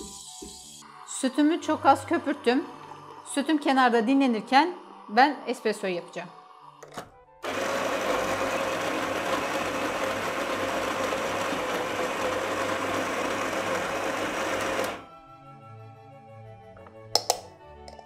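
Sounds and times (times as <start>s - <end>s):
electric coffee grinder grinding: 7.4s - 15.0s.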